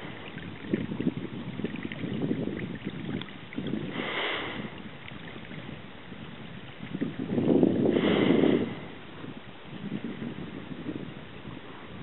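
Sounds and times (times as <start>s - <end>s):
water lapping around canoe: 0.0s - 9.5s
wind on microphone: 0.0s - 12.0s.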